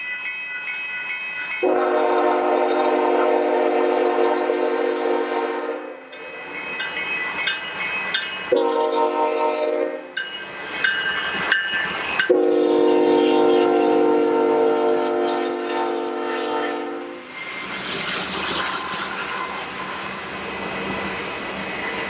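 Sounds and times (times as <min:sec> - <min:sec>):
rolling train wheels: 0:00.0 - 0:22.0
diesel locomotives rumbling: 0:01.5 - 0:22.0
locomotive horn blowing: 0:01.6 - 0:06.1, 0:08.5 - 0:10.2, 0:12.3 - 0:17.3.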